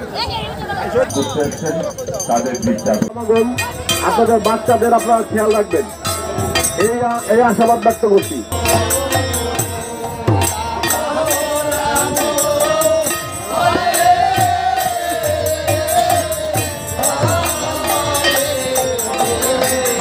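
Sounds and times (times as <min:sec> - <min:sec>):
harmonium: 0:00.2 - 0:20.0
men chanting in unison: 0:03.9 - 0:20.0.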